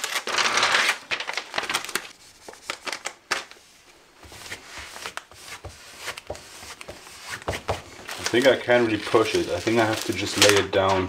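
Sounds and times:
plastic foil crinkling: 0.0s - 3.6s, 8.0s - 11.0s.

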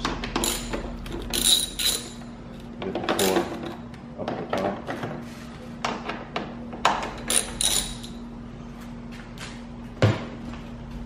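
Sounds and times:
screwdriver clicks and metallic clinks: 0.4s - 2.2s, 7.2s - 8.2s.

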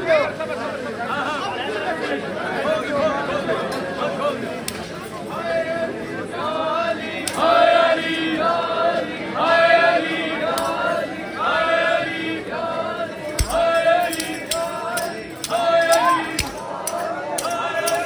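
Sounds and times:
men chanting together: 5.3s - 18.0s
sharp knocks: 13.4s - 15.6s.

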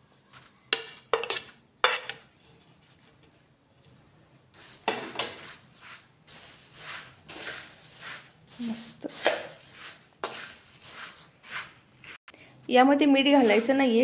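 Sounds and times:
puffed rice rustling: 3.8s - 12.2s, 13.3s - 14.0s
spoon scraping steel bowl: 4.6s - 12.2s, 13.3s - 13.8s.

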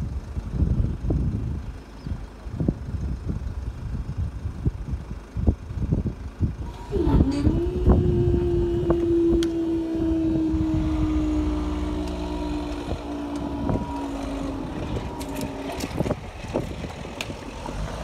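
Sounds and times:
freight train passing: 6.6s - 18.0s
train knocks and clicks: 10.5s - 18.0s.

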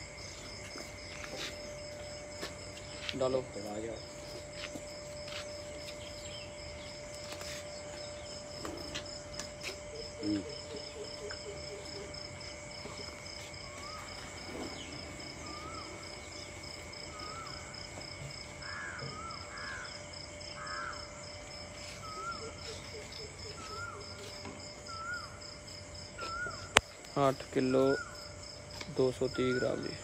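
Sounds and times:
pulsing insect drone: 0.0s - 30.0s.

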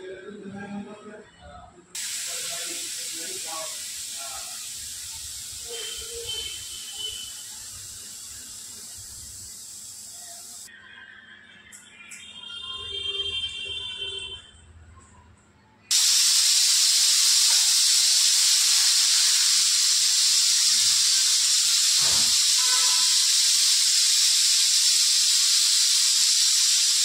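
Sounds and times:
compressed air hissing from hose: 2.0s - 10.7s, 15.9s - 27.0s.

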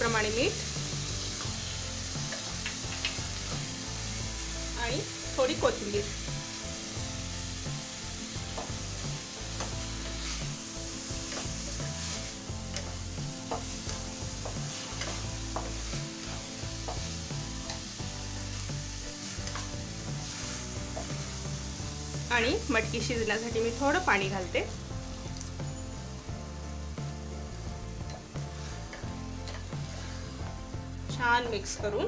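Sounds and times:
beans sizzling in hot oil: 0.0s - 32.0s
spatula scraping a pan: 8.5s - 22.0s, 28.1s - 30.4s.

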